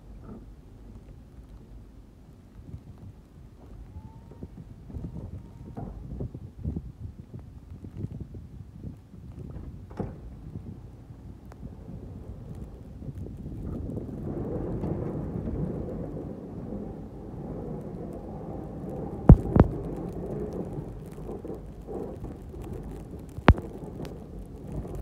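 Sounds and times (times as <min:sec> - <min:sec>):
sharp knocks: 0:19.3 - 0:19.7.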